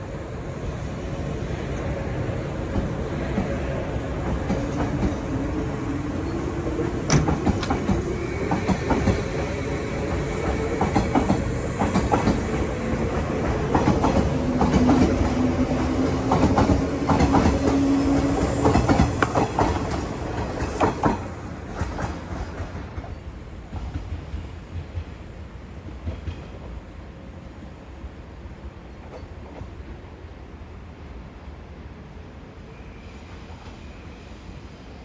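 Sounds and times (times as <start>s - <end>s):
electric train rumbling: 0.0s - 35.0s.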